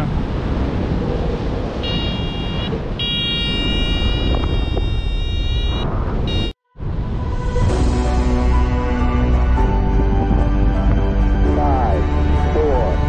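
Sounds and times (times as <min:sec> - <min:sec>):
wind noise on microphone: 0:00.0 - 0:11.6
high electronic variometer tone: 0:01.8 - 0:06.6
music: 0:07.1 - 0:13.0.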